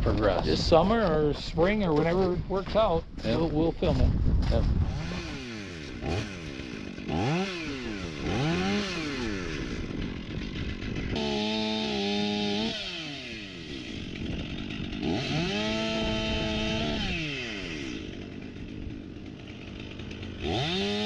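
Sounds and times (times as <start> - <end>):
chainsaw revving: 4.5 - 21.0.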